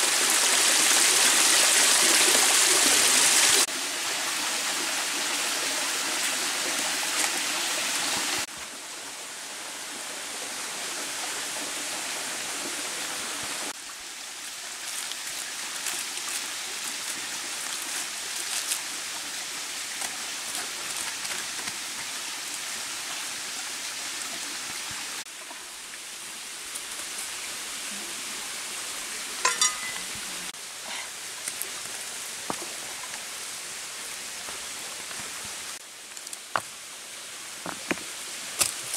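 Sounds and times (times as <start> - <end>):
water trickling over rock: 13.7 - 27.6.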